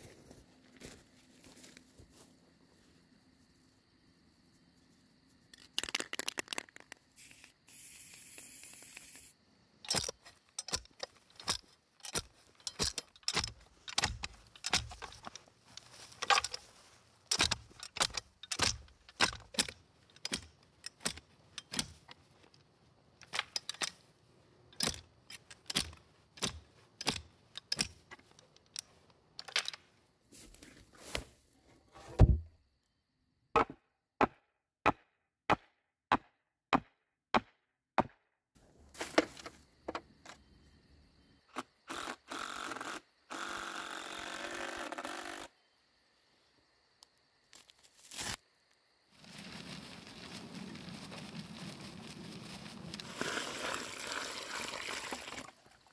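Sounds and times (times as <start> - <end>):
spray can rattling: 5.6 - 9.3
spray can hissing: 6.9 - 9.3
digger striking soil: 8.8 - 16.7, 17.3 - 22.1.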